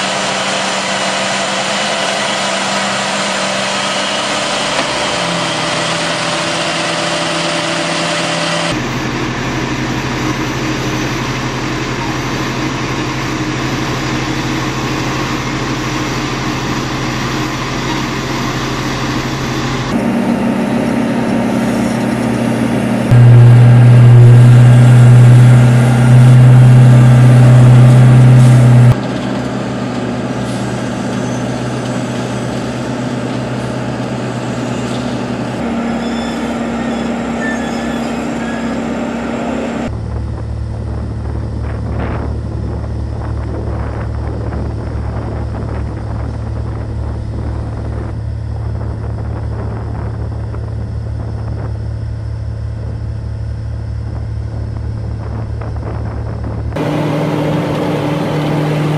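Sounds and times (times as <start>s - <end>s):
paving machine engines humming: 0.0s - 58.9s.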